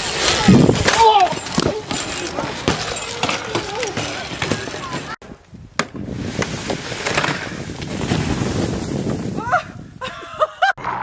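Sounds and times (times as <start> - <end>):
people yelping and shouting: 0.2 - 5.2
snow sliding off roof: 6.0 - 10.7.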